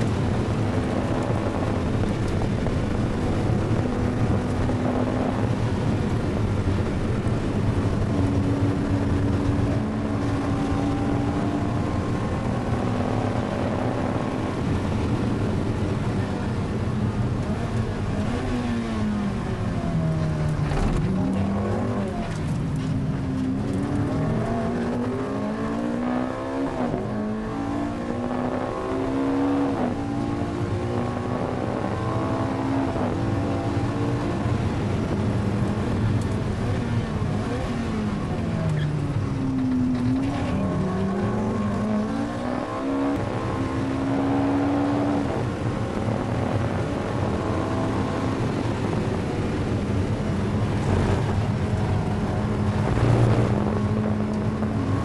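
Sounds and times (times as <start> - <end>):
sports car engine at hard throttle: 0.0 - 55.0.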